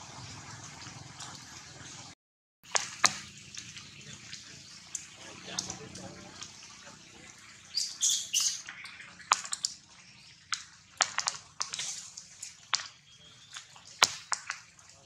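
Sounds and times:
rain dripping through foliage: 2.6 - 15.0
high chirps: 7.6 - 9.2.

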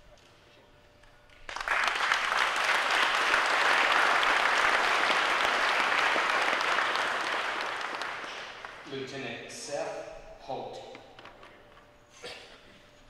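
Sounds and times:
audience applause: 1.4 - 8.9.

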